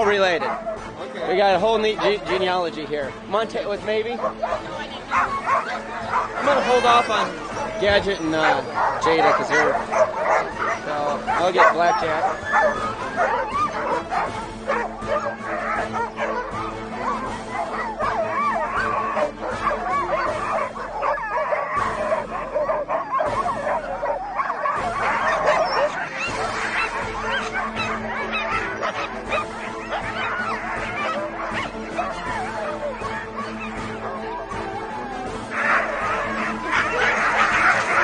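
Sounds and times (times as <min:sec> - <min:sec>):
background music: 0:00.0 - 0:38.0
dogs barking and howling: 0:00.0 - 0:38.0.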